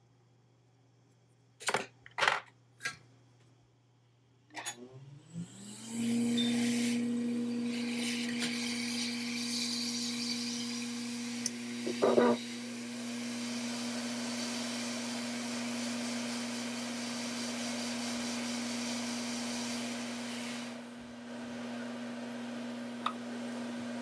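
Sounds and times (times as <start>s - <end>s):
hot-air blower humming and hissing: 5.2s - 24.0s.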